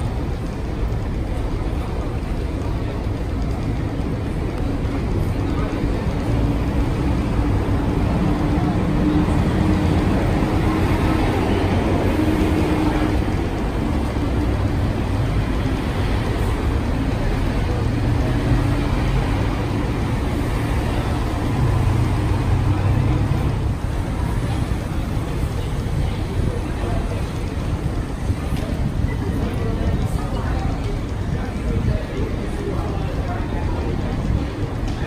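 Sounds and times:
road traffic rumble: 0.0s - 35.0s.

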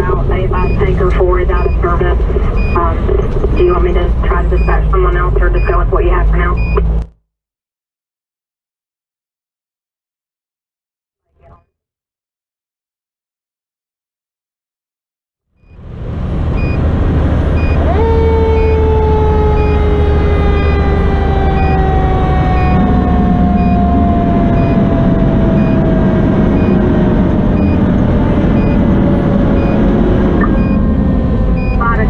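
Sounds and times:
diesel engine running: 0.0s - 7.1s, 15.6s - 32.0s
faint beep: 0.6s - 6.9s, 16.6s - 16.8s, 17.6s - 17.8s, 23.6s - 23.8s, 24.6s - 24.8s, 25.6s - 25.8s, 26.6s - 26.8s, 27.6s - 27.8s, 28.6s - 28.8s, 29.6s - 29.8s, 30.4s - 30.8s, 31.6s - 32.0s
mechanical siren wail: 15.7s - 32.0s.

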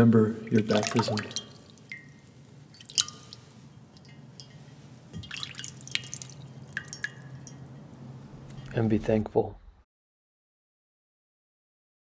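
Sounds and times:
water dripping into glass bowl: 0.5s - 8.7s.

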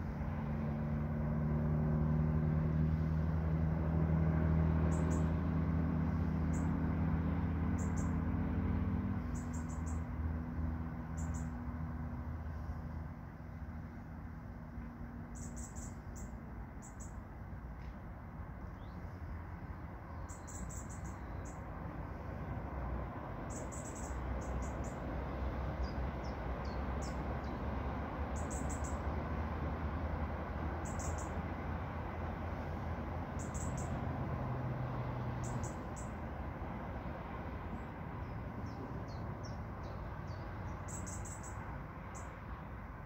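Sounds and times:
low outdoor rumble: 0.0s - 43.0s
small bird chirping: 4.9s - 5.4s, 6.4s - 6.8s, 7.8s - 8.2s, 9.2s - 10.1s, 11.0s - 11.6s, 15.3s - 17.2s, 18.7s - 19.4s, 20.1s - 21.7s, 23.5s - 25.0s, 25.8s - 27.6s, 28.3s - 29.1s, 30.8s - 31.4s, 33.4s - 34.0s, 35.4s - 36.2s, 38.2s - 42.4s.

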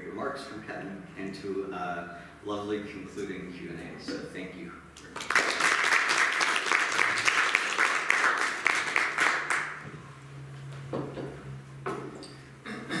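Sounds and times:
audience applauding: 5.0s - 9.9s.

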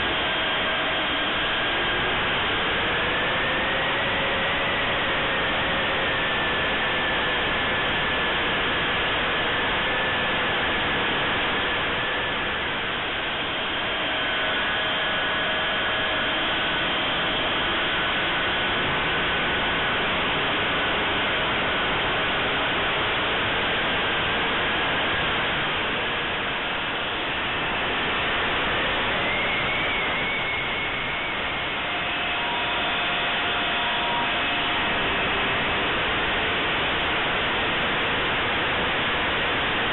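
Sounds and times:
electric ducted fan rushing: 0.0s - 39.9s
faint whining tones: 24.7s - 39.9s.

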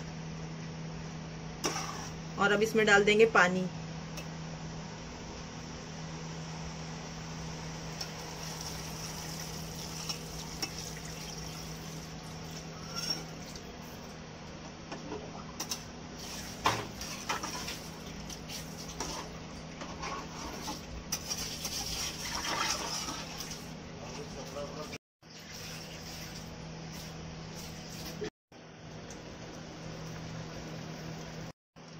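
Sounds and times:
steady low hum: 0.0s - 21.2s
metal spatula scraping a pot: 1.6s - 2.2s, 12.6s - 13.4s, 19.0s - 23.4s.

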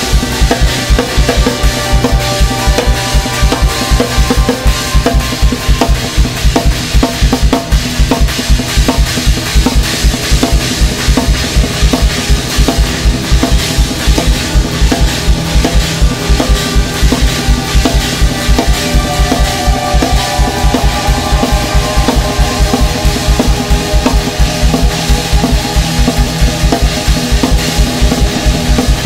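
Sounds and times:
sustained low tones: 0.0s - 8.0s, 10.8s - 28.8s
drum kit music: 0.0s - 29.0s
higher held tone: 16.2s - 25.4s.

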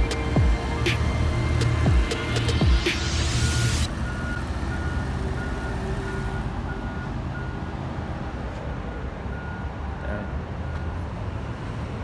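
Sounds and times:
car engine and tyres rolling: 0.0s - 12.0s.

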